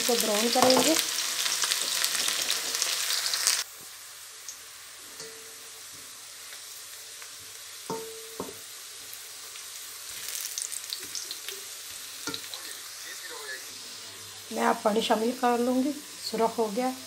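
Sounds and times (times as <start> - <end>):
onions sizzling in oil: 0.0 - 17.0
wooden spoon knocking on pan: 0.6 - 1.0, 7.9 - 8.6.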